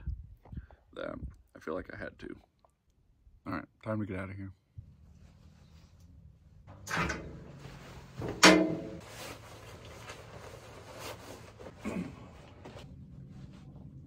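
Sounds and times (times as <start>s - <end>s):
fabric rustling: 7.4s - 14.0s.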